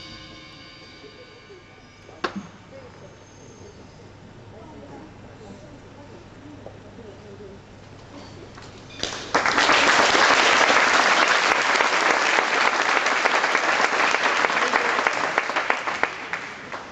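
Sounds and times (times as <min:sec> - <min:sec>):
audience applause: 0:09.0 - 0:16.9.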